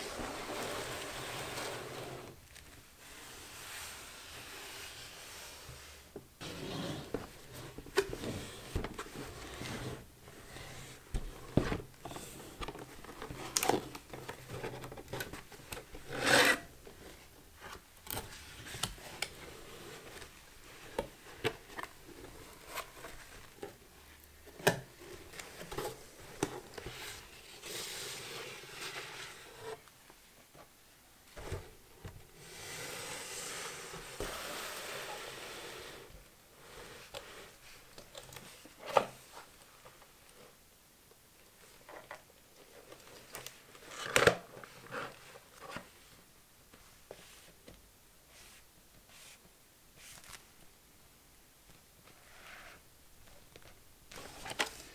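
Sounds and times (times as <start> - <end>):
cardboard rubbing and scraping: 0.0 - 2.4.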